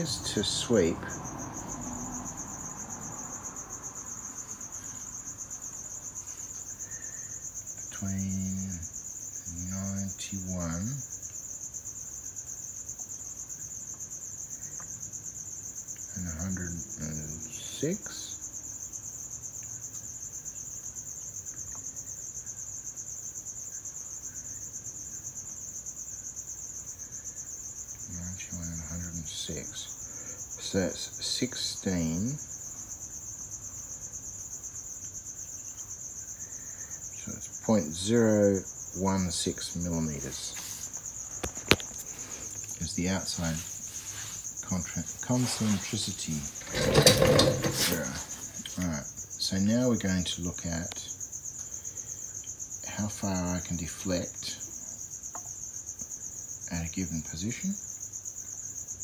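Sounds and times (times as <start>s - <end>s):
crickets chirping: 0.0s - 59.0s.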